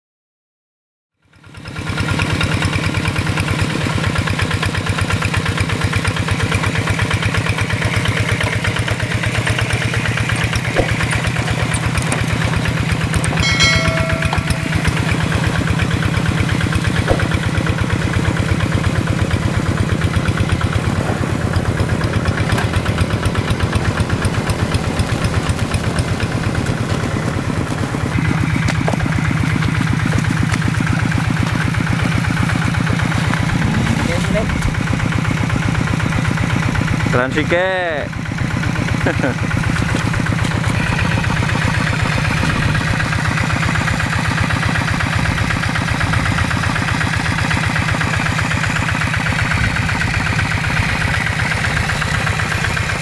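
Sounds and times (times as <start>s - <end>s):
diesel engine running: 1.2s - 53.0s
brief high call: 13.4s - 15.5s.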